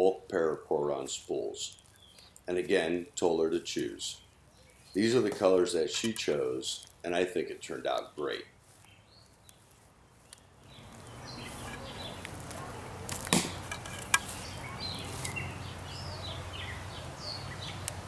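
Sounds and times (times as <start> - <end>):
birds chirping: 0.0 - 18.0
arrow striking cardboard box: 13.2 - 14.3.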